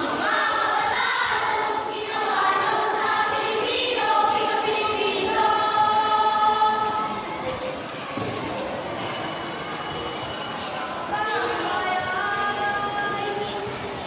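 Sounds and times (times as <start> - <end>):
children reciting in unison: 0.0 - 8.6, 10.7 - 14.0.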